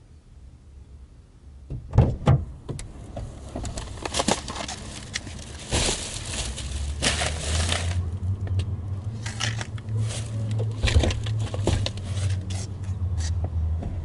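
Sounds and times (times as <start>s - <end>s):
plastic bags rustling: 3.7s - 8.3s, 9.2s - 12.5s
car door opening: 10.4s - 12.0s.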